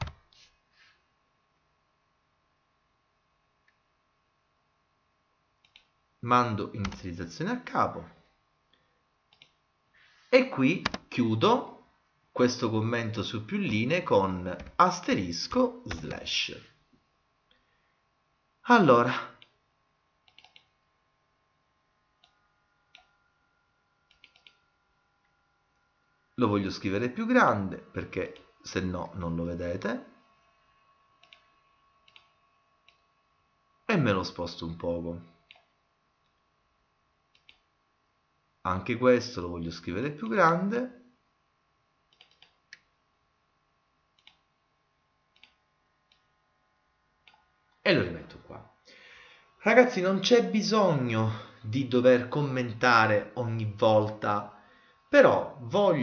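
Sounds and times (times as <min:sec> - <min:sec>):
computer mouse clicks: 0:05.6 - 0:06.0, 0:09.3 - 0:09.6, 0:10.8 - 0:11.1, 0:20.2 - 0:20.8, 0:22.2 - 0:23.2, 0:24.1 - 0:24.7, 0:31.2 - 0:33.1, 0:35.5 - 0:36.4, 0:37.3 - 0:37.7, 0:42.1 - 0:42.9, 0:44.1 - 0:44.5, 0:45.3 - 0:46.3, 0:47.2 - 0:47.5.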